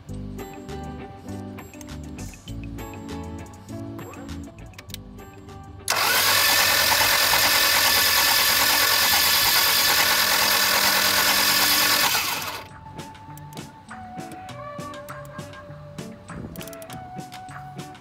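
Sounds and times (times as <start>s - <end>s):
loud steady mechanical noise: 5.9s - 12.7s.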